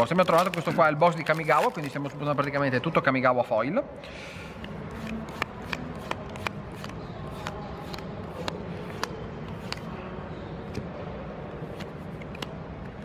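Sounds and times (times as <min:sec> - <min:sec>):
cards clicking together: 0:04.6 - 0:09.9
cards sliding: 0:04.6 - 0:09.9.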